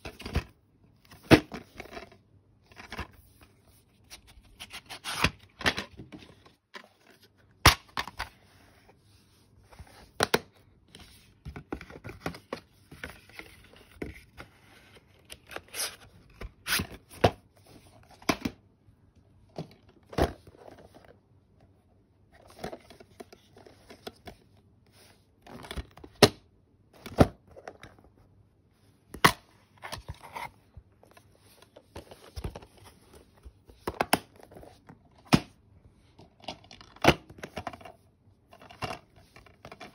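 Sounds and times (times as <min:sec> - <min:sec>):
plastic cases rustling and scraping: 0:00.0 - 0:18.5, 0:19.5 - 0:21.2, 0:22.2 - 0:26.1, 0:27.0 - 0:35.3, 0:36.1 - 0:39.9.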